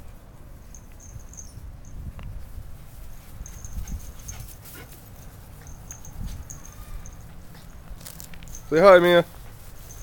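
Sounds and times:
light clicks and rustles: 2.1s - 10.0s
small dogs playing: 2.8s - 8.7s.

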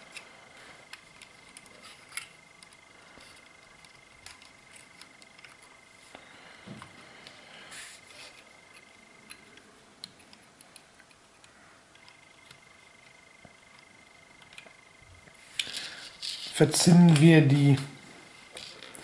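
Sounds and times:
fingers handling wires clicking: 0.0s - 5.8s, 8.1s - 14.8s
faint steady high tone: 0.0s - 19.0s.

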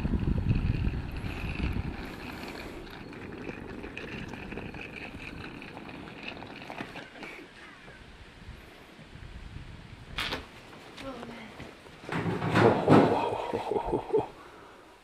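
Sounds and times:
wind buffeting microphone: 0.0s - 6.6s, 7.9s - 10.3s
suitcase wheels rolling on asphalt: 0.0s - 7.7s.

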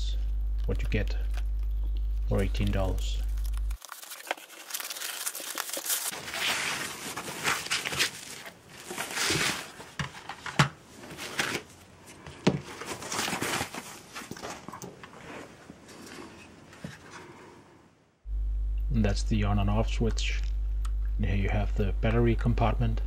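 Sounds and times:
plastic bag rustling and crinkling: 1.3s - 11.8s, 12.4s - 16.7s.

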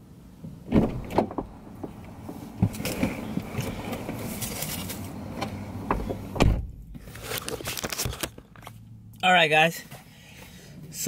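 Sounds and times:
low car cabin rumble: 0.1s - 7.3s
knocks and thumps in car seat: 0.7s - 4.3s, 5.4s - 7.0s.

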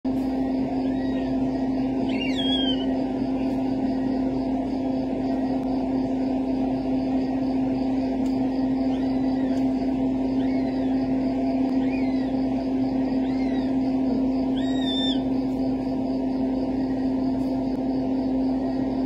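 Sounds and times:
low fan or motor hum: 0.0s - 19.0s.

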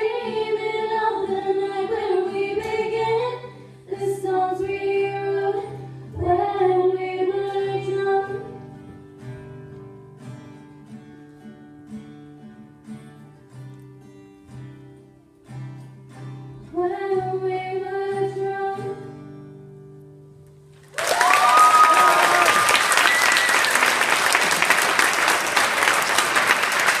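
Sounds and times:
girl singing: 0.0s - 8.8s, 16.6s - 19.2s
acoustic guitar: 0.0s - 21.8s
audience applause: 20.8s - 27.0s.

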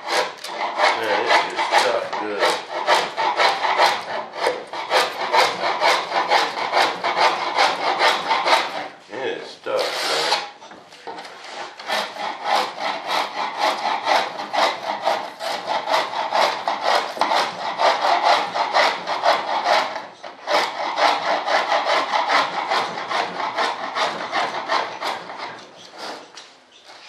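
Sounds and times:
hand scraping foam: 0.0s - 4.3s, 4.9s - 10.6s, 11.2s - 20.0s.

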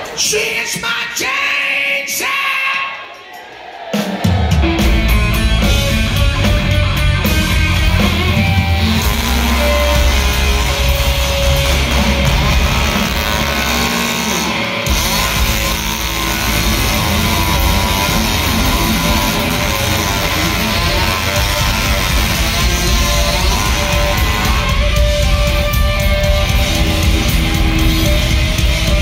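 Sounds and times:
hard rock band playing: 4.0s - 29.0s
chainsaw cutting wood: 7.7s - 29.0s.

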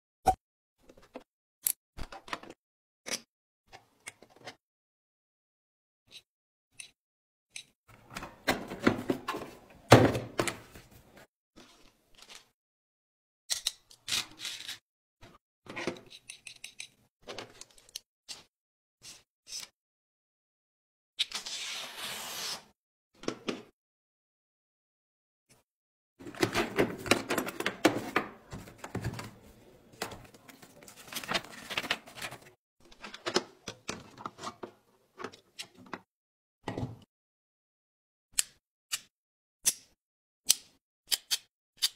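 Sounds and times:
tools clattering in plastic case: 26.2s - 29.4s
paper sheet rustling: 26.2s - 32.6s.

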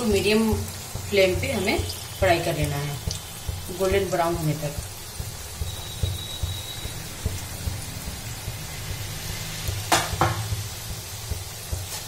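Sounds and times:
dough deep-frying in oil: 0.0s - 12.0s
sharp knocks: 9.9s - 11.9s.

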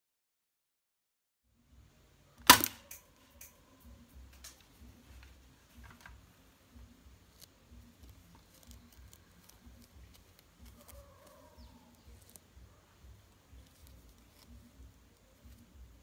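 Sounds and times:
gloved hands rustling a leaf: 3.9s - 16.0s.

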